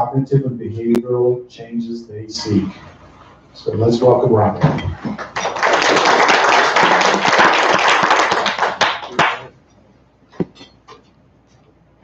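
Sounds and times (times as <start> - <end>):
audience applauding: 5.0 - 9.5.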